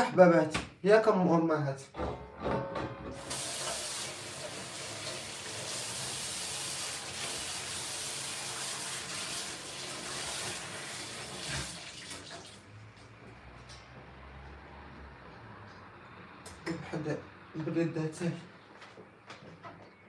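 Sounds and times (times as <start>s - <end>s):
dishes being washed: 3.0s - 12.7s
tap running into sink: 3.2s - 7.6s.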